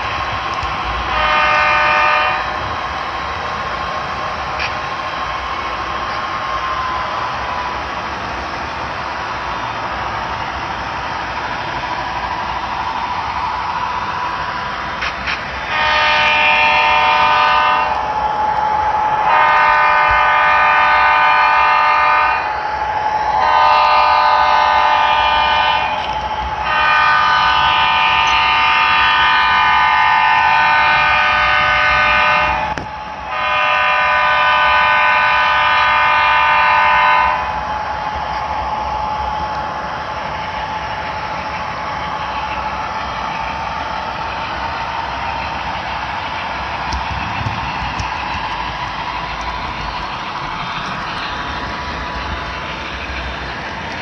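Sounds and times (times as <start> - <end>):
locomotive air horn blasts: 1.1 - 2.7, 15.6 - 18.1, 19.2 - 22.6, 23.4 - 37.6.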